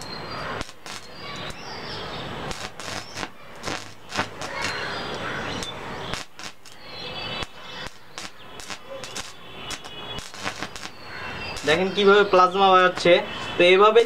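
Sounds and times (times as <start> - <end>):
electric arc crackling and popping: 0.0 - 14.0.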